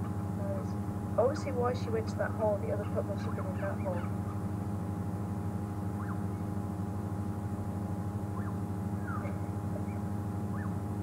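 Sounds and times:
vehicle engine idling: 0.0s - 11.0s
bird chirps: 2.8s - 4.4s, 5.9s - 6.4s, 8.3s - 10.8s.

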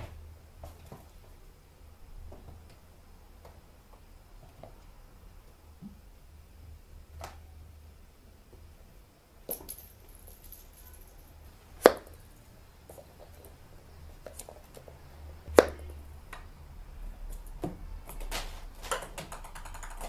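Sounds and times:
toy ball clicking and rustling: 18.8s - 20.0s.

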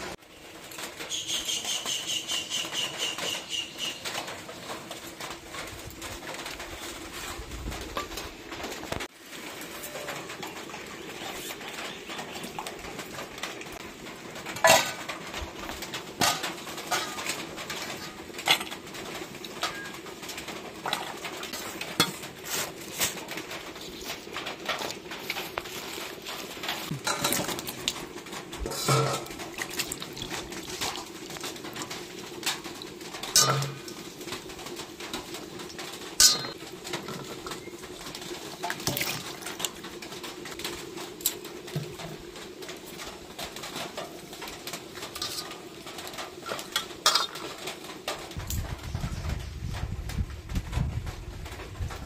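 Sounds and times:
potatoes in bowl of water: 0.0s - 49.8s
birds cooing: 1.0s - 4.5s, 9.6s - 13.7s
steel bowls and plates clinking: 14.6s - 15.2s, 16.2s - 18.8s, 19.4s - 20.1s, 20.8s - 23.2s, 26.8s - 28.0s, 28.6s - 31.9s, 33.2s - 34.0s, 36.2s - 37.6s, 45.1s - 47.6s.

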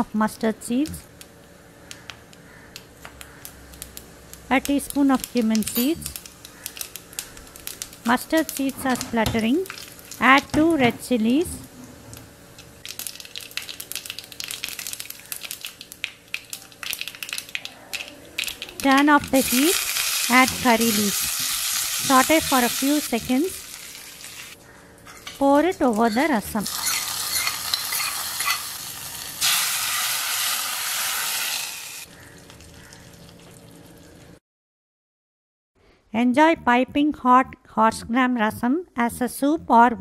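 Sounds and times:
seeds popping in hot oil: 0.8s - 8.7s, 12.6s - 24.5s.

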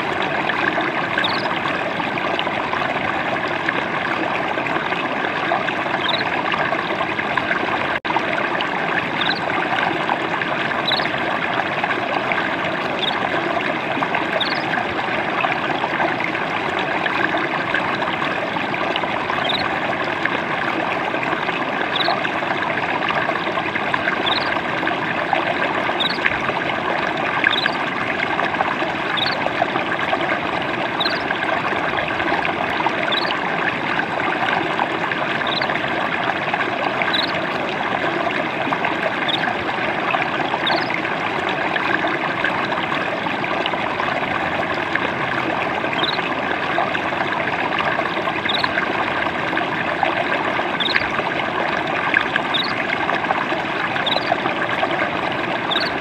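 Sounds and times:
stream water trickling: 0.0s - 56.0s
bird chirping faintly: 1.2s - 1.5s, 6.0s - 6.3s, 10.9s - 11.1s, 13.0s - 13.2s, 14.4s - 14.6s, 19.4s - 19.7s, 21.9s - 22.2s, 24.2s - 24.5s, 26.0s - 26.2s, 27.5s - 27.8s, 29.2s - 29.4s, 31.0s - 31.2s, 33.1s - 33.3s, 35.4s - 35.7s, 37.1s - 37.3s, 46.0s - 46.2s, 48.5s - 48.7s, 50.8s - 51.0s, 52.5s - 52.8s, 54.0s - 54.3s, 55.7s - 56.0s.

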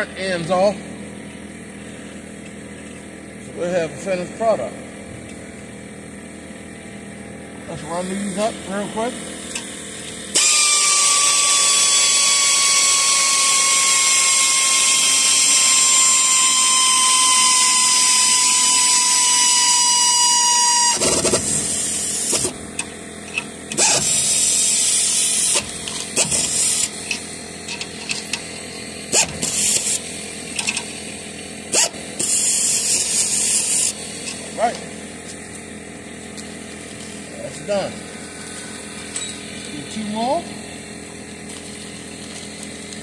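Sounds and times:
power drill whining: 10.3s - 22.5s.

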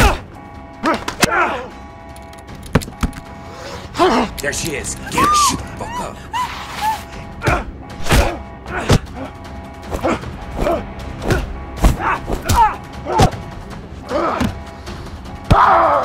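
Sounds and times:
punch and kick hits: 7.4s - 9.3s, 9.9s - 13.6s.

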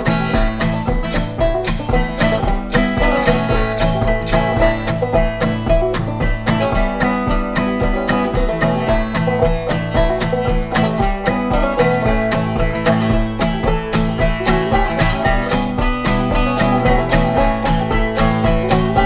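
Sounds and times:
acoustic guitar rhythm: 0.0s - 19.0s
banjo picking: 0.0s - 19.0s.

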